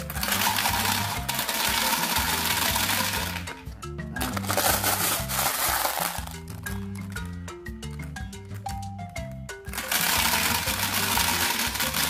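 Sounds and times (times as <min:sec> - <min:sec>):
marbles clicking together: 0:00.0 - 0:03.6, 0:04.2 - 0:08.1, 0:09.7 - 0:12.0
marbles rattling into plastic drum: 0:00.0 - 0:03.6, 0:04.3 - 0:06.5, 0:09.7 - 0:12.0
background music: 0:00.0 - 0:12.0.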